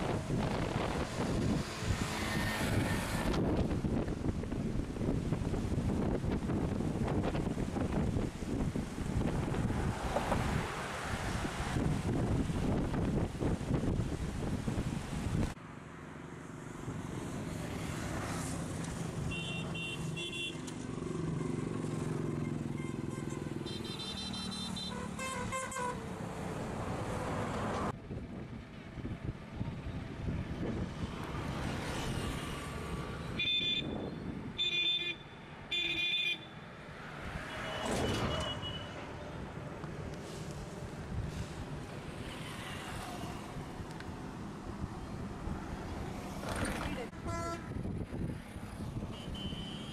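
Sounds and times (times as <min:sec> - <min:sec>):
outdoor background noise: 0:00.0 - 0:49.9
vehicle horn beeps: 0:19.3 - 0:20.6, 0:22.4 - 0:26.0, 0:33.4 - 0:36.5, 0:37.5 - 0:39.0, 0:47.2 - 0:47.7, 0:49.1 - 0:49.9.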